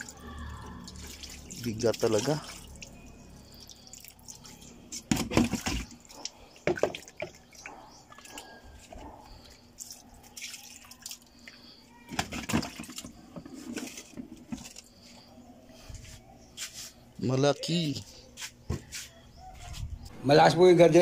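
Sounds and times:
water splashing and dripping: 0.0 - 14.6.

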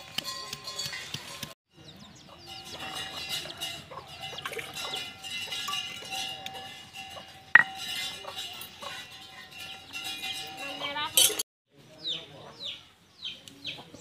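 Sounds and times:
chickens clucking: 2.1 - 5.6
sharp metallic clink: 2.6 - 8.9.

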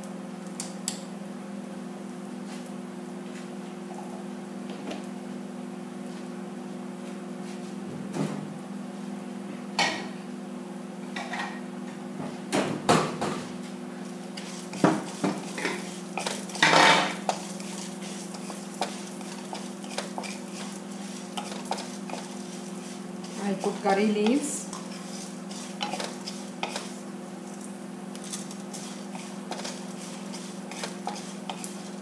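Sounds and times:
steady low hum: 13.4 - 32.0
metal spoon scraping a pan: 14.4 - 27.0, 27.6 - 32.0.

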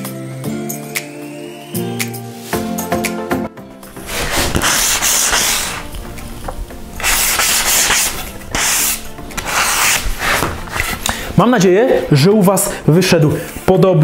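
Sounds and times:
sanding sponge rasping on board edge: 4.0 - 5.9, 7.0 - 11.0.

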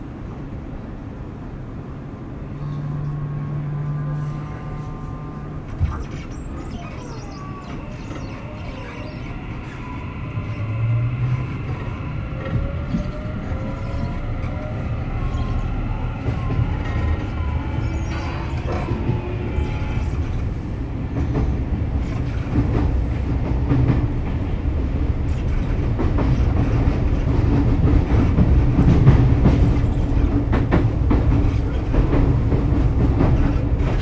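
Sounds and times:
train wheels rumbling on rails: 0.0 - 34.0
traction motor whine: 2.1 - 22.9.

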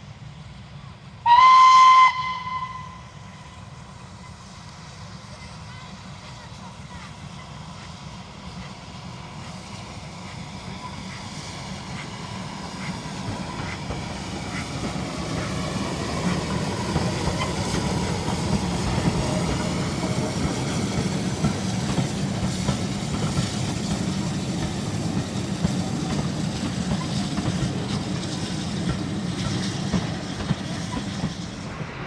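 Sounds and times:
train rumbling on rails: 0.0 - 32.0.

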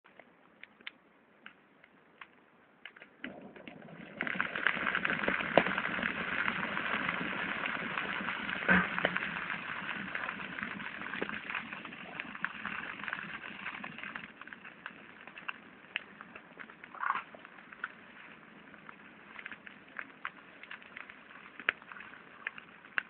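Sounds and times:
brush fire crackling and popping: 0.1 - 23.0.

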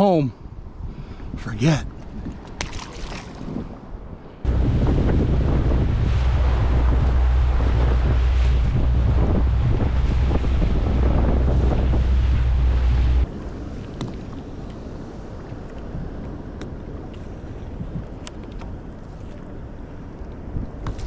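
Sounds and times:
wind buffeting microphone: 0.4 - 21.0
rushing sea water: 0.9 - 21.0.

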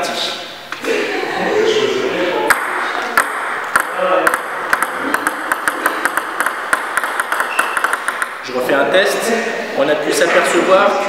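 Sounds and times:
table tennis balls bouncing: 2.4 - 8.5.

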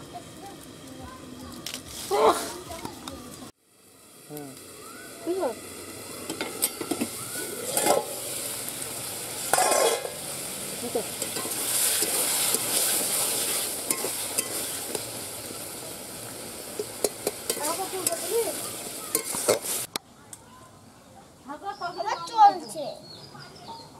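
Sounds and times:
vegetables sizzling in a pan: 0.0 - 19.9
metal spatula scraping a pan: 7.6 - 8.2, 9.5 - 10.2.

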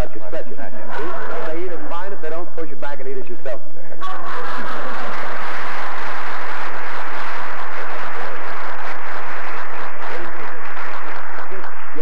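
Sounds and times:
audience applauding and laughing: 4.0 - 12.0.

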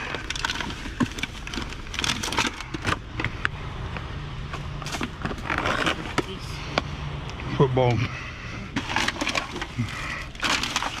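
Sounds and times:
plastic bags crinkling: 0.0 - 3.0, 8.7 - 11.0
low steady hum: 0.0 - 11.0.

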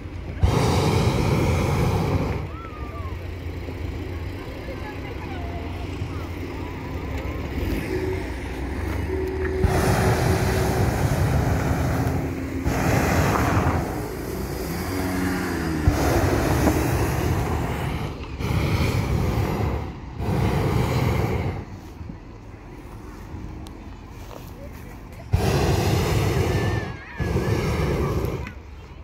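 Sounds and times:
propane burner roaring: 0.0 - 29.0.

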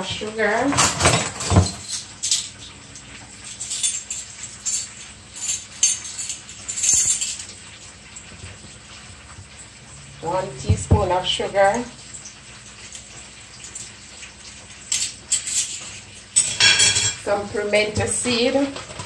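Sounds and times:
metal measuring spoons clinking: 1.1 - 2.6, 3.4 - 7.5, 14.9 - 17.2.

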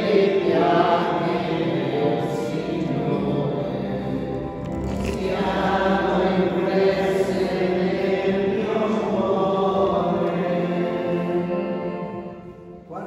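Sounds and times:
voices singing a slow hymn: 0.0 - 13.0.

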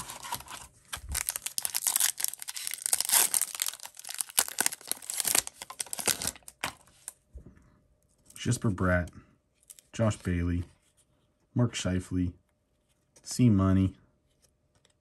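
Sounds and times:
foil wrapper crinkling: 0.0 - 6.8.

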